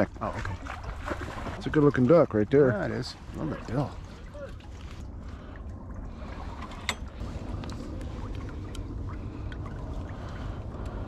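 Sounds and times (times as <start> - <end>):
wind rumble on microphone: 2.8 - 11.0.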